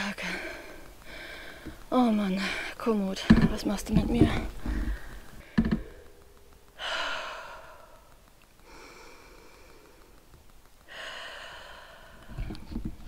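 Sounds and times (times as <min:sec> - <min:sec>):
woman breathing hard: 0:00.0 - 0:01.8, 0:04.6 - 0:12.7.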